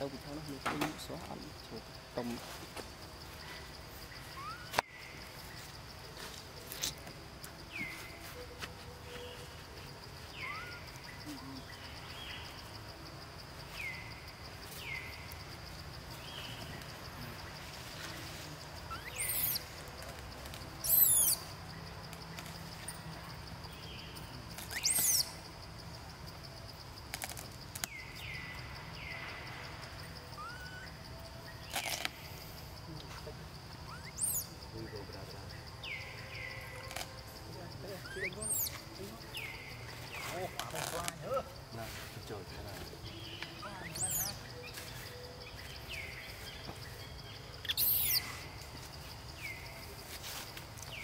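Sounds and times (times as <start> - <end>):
high falling calls: 3.5 - 5.7, 10.2 - 12.6, 47.5 - 48.8
baby monkey crying: 4.4 - 4.7, 10.4 - 11.5, 18.9 - 19.7, 20.8 - 21.4, 30.4 - 30.9, 33.9 - 34.5, 47.6 - 48.3.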